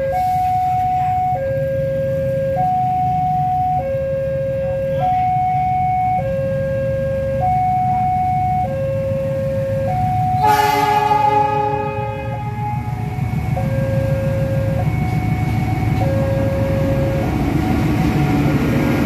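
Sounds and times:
two-tone crossing alarm: 0.0s - 19.0s
locomotive horn chord: 10.4s - 17.4s.

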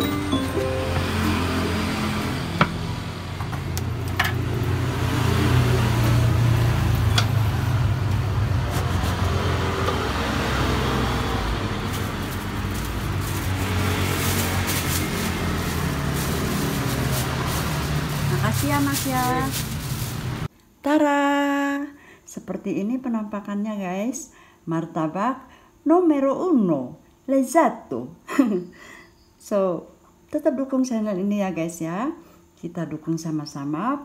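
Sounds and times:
traffic passing: 0.0s - 20.5s.

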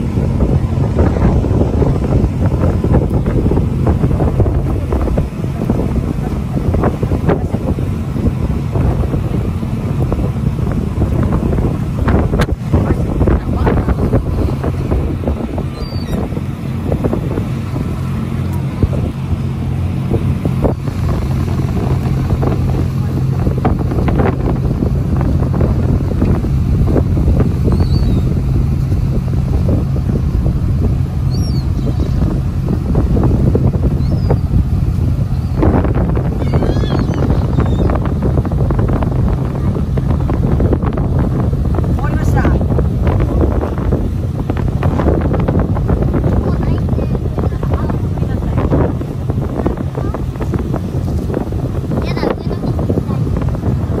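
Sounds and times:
boat engine running: 0.0s - 54.0s
wind buffeting microphone: 0.0s - 54.0s
gull calling: 36.4s - 38.0s.

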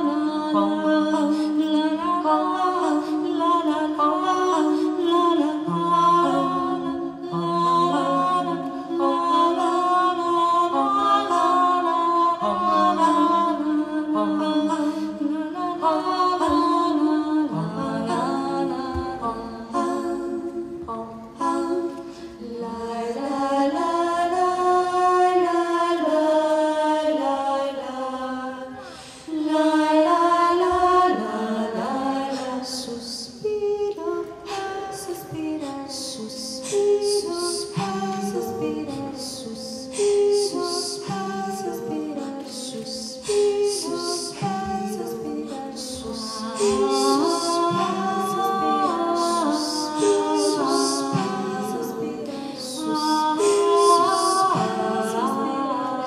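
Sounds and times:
female vocal quartet singing: 0.0s - 56.0s.

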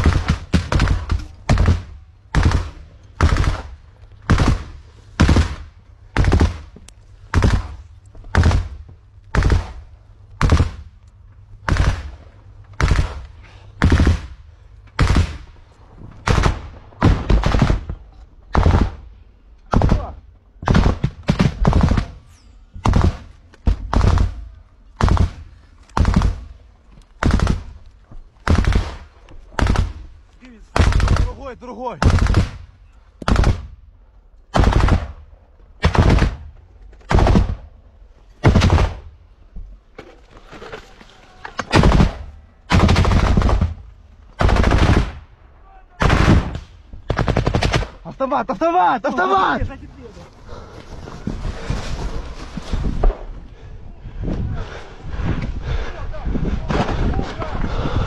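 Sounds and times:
rifle shots: 0.0s - 10.9s, 11.6s - 15.6s, 16.2s - 19.1s, 19.7s - 27.8s, 28.4s - 31.4s, 32.0s - 33.8s, 34.5s - 37.8s, 38.4s - 39.1s, 41.6s - 45.3s, 46.0s - 48.0s.

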